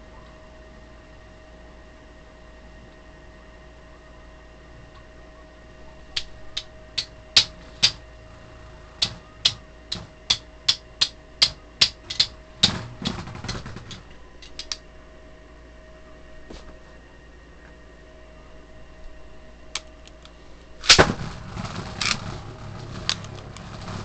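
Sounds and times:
spinning tops clashing: 0:06.2 - 0:14.8.

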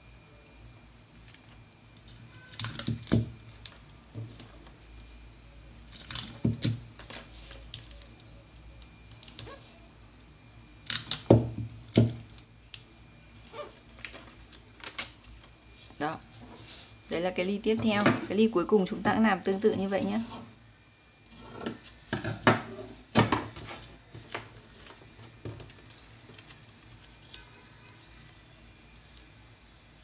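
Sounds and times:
paper and tape rustling: 0:13.4 - 0:17.0, 0:23.5 - 0:29.3.

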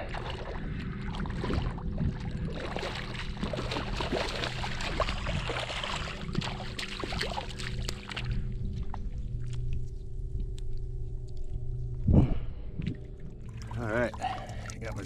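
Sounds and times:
fish thrashing and splashing: 0:00.0 - 0:08.4, 0:13.0 - 0:15.0.

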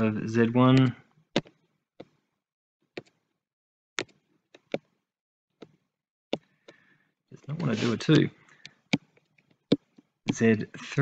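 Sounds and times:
stylus tapping on tablet: 0:00.8 - 0:02.2, 0:03.0 - 0:03.2, 0:04.0 - 0:05.0, 0:05.6 - 0:06.8, 0:08.6 - 0:10.5.

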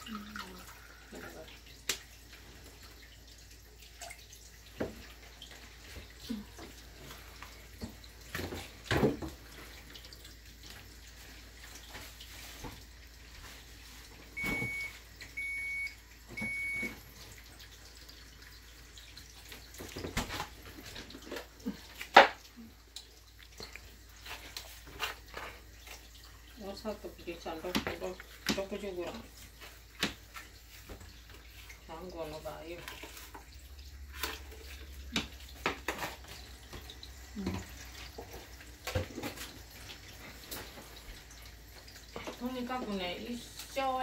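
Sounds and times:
appliance electronic beeps: 0:14.4 - 0:17.0.

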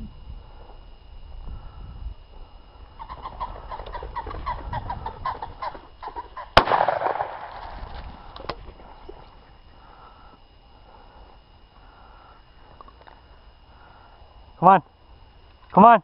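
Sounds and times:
pheasant cackling: 0:03.0 - 0:06.6
shotgun shot: 0:06.6 - 0:07.9.

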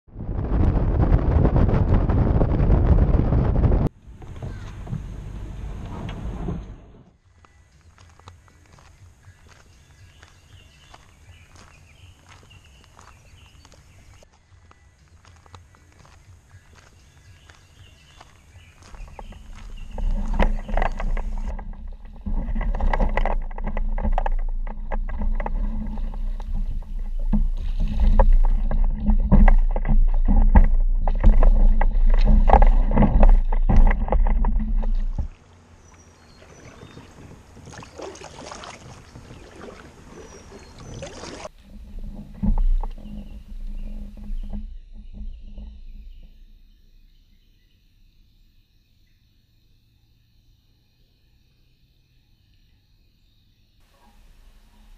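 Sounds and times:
plastic hull scraping over gravel: 0:00.2 - 0:07.1, 0:17.7 - 0:37.7, 0:38.8 - 0:46.2
water sloshing: 0:17.4 - 0:45.8
water splashing: 0:18.2 - 0:44.3.

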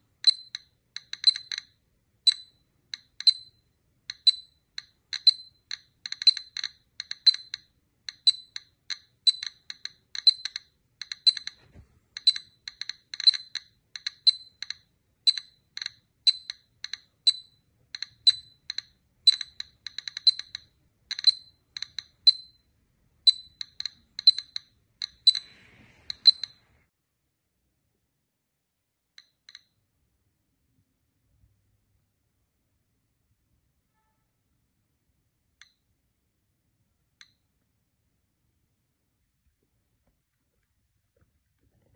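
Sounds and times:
light high-pitched clicking and clinking: 0:00.0 - 0:26.7, 0:29.2 - 0:29.8.

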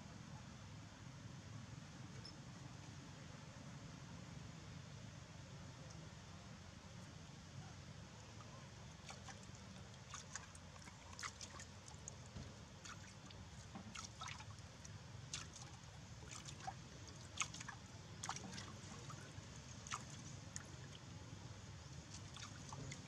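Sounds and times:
monkeys lapping water: 0:09.0 - 0:21.0, 0:22.1 - 0:23.0.

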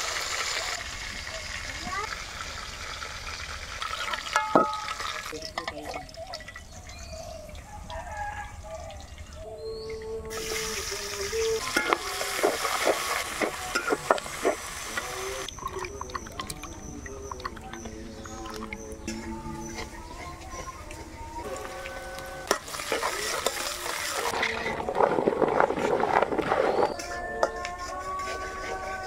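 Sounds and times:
onions sizzling in hot oil: 0:00.0 - 0:05.0, 0:10.3 - 0:15.5, 0:21.4 - 0:24.4
oil sizzling in wok: 0:00.0 - 0:05.3, 0:10.3 - 0:15.5, 0:21.4 - 0:24.4
metal spatula scraping pan: 0:22.3 - 0:29.0.

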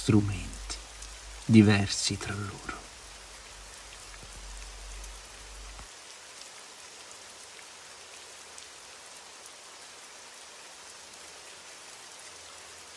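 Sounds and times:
low hum: 0:00.0 - 0:05.8
faint rain drop ticks: 0:00.0 - 0:06.5
steady rain hiss: 0:00.0 - 0:12.9.

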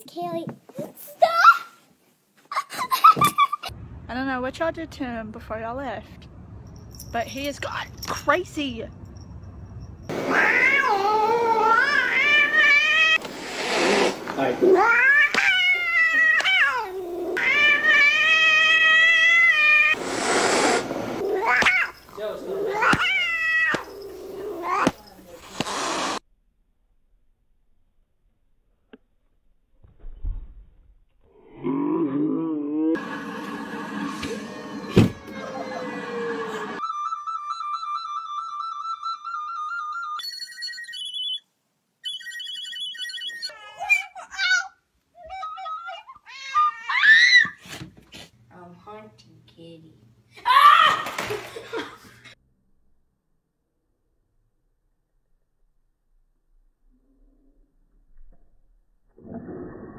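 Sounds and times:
cat meowing: 0:10.2 - 0:13.2, 0:14.6 - 0:20.0, 0:21.2 - 0:25.1
cat hissing: 0:10.2 - 0:26.2
wavering sliding cries: 0:33.0 - 0:41.4, 0:42.0 - 0:44.1
recorder trilling: 0:42.0 - 0:43.6.

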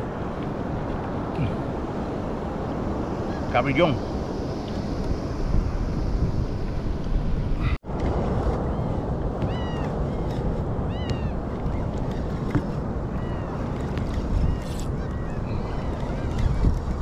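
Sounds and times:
wind: 0:00.0 - 0:17.0
seabirds calling: 0:08.6 - 0:17.0.

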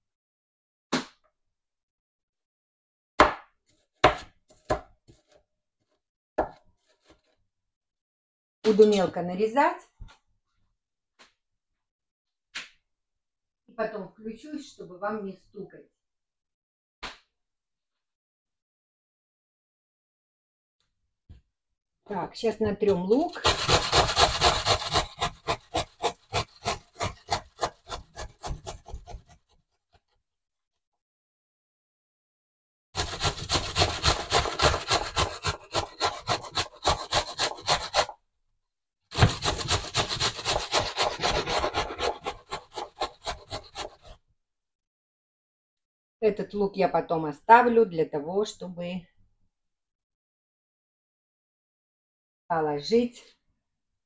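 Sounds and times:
knife chopping onion on board: 0:03.2 - 0:05.4, 0:22.9 - 0:29.4, 0:33.0 - 0:38.1, 0:39.1 - 0:44.2.

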